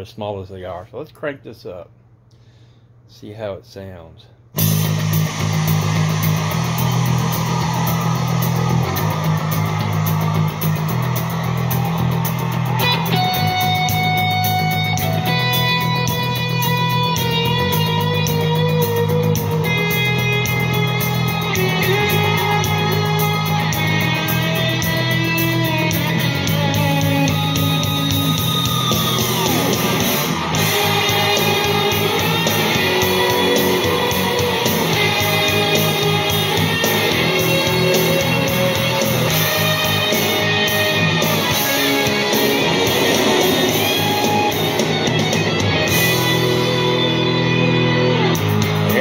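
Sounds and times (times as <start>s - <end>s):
falling pitch glide: 4.6s - 14.7s, 26.7s - 47.6s
rock music with electric guitar: 4.6s - 49.0s.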